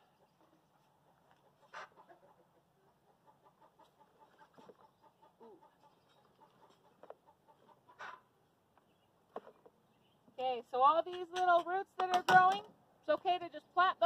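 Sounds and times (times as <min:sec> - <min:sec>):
chickens clucking: 0:00.0 - 0:09.0.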